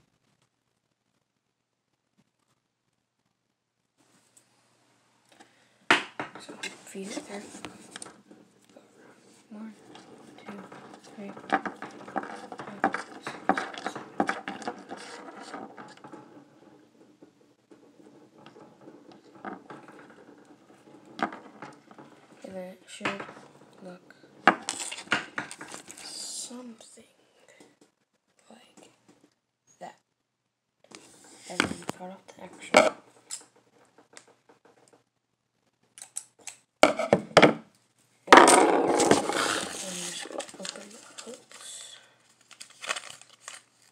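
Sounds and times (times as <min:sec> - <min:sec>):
scraping rustle against table: 0:06.4 - 0:26.3, 0:38.6 - 0:43.9.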